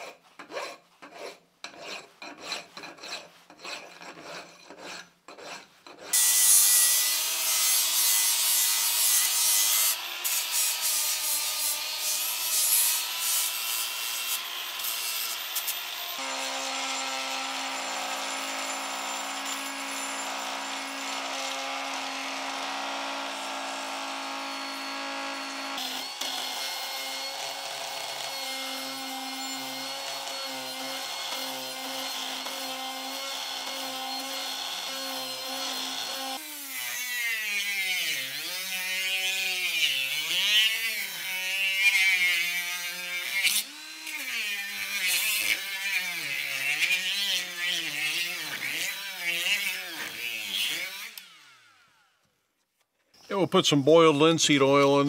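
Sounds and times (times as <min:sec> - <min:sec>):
die grinder whine: 0:06.1 - 0:52.2
angle grinder whine: 0:14.1 - 0:30.8.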